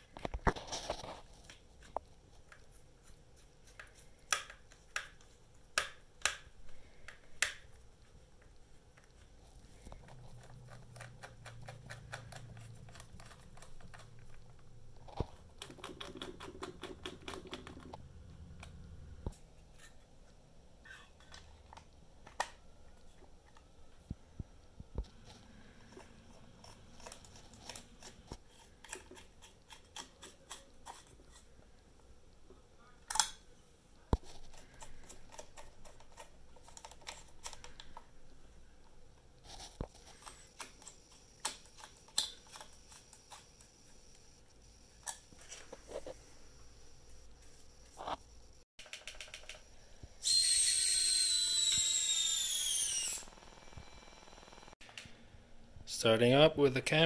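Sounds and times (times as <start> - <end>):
screwdriver turning small screws: 50.2 - 53.5.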